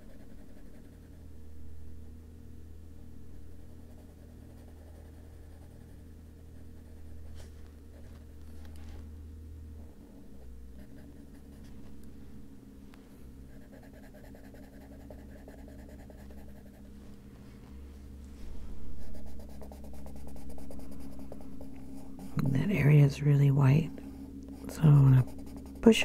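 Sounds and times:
pencil scratching on paper: 3.6 - 8.2, 13.5 - 17.0, 18.9 - 22.9, 24.6 - 26.0.

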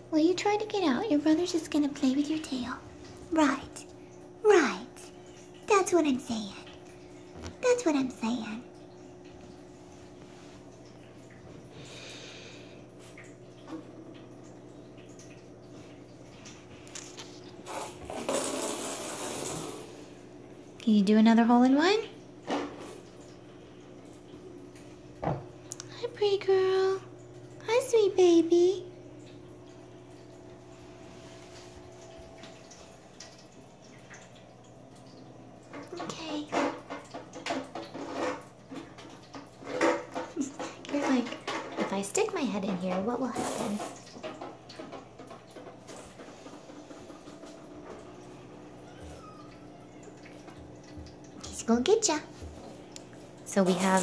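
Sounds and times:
paws tapping in bathtub: 35.6 - 54.0.

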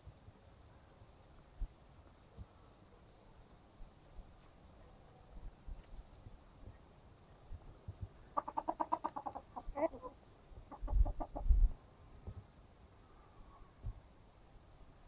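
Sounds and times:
chickens clucking: 8.2 - 11.7.

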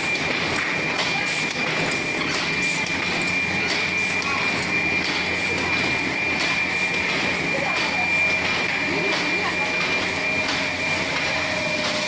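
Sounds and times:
machine high-pitched whine: 0.0 - 12.0
steady mechanical noise: 0.0 - 12.0.

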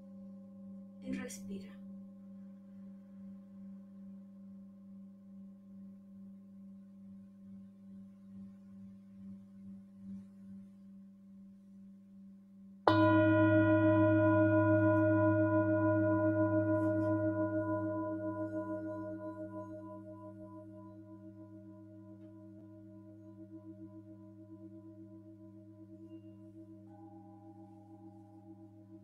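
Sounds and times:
singing bowl humming: 12.9 - 29.0
singing bowl struck with mallet: 12.9 - 29.0.

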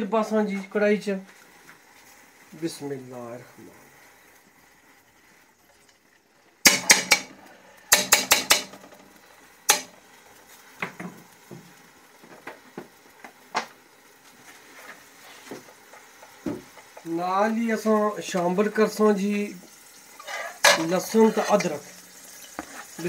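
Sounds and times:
metal spoon clinking on pan: 6.7 - 8.8.

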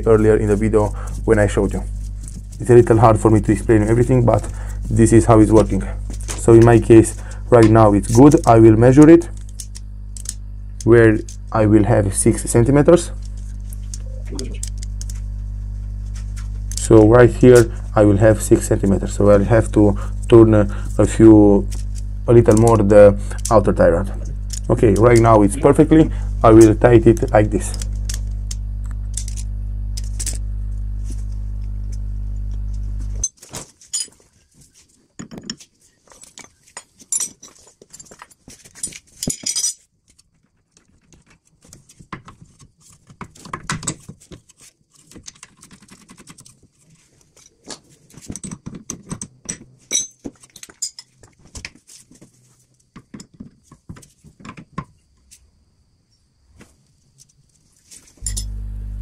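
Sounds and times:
steady low hum: 0.0 - 33.3, 56.7 - 59.0
metallic clicks and clinks from tools: 36.2 - 39.8, 48.3 - 51.2, 58.2 - 58.6.

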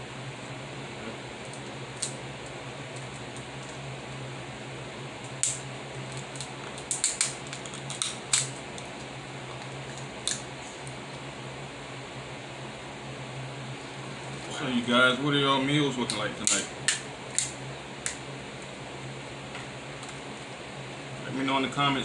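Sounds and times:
steady low hum: 0.0 - 22.0
crab shells cracking: 5.3 - 9.0.

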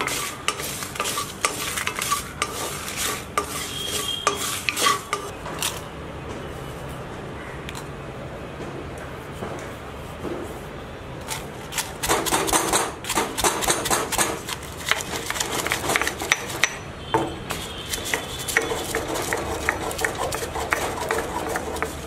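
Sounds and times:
stone pestle pounding in mortar: 11.9 - 16.8, 17.5 - 22.0.

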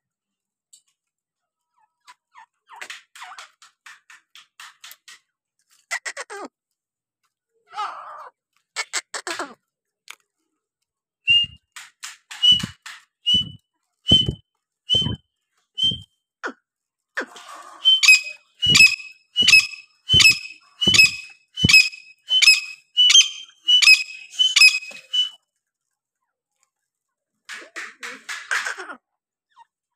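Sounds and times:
francolin whistled calls: 11.3 - 11.6, 12.4 - 12.7, 13.3 - 15.2, 15.8 - 16.0, 17.8 - 25.4.

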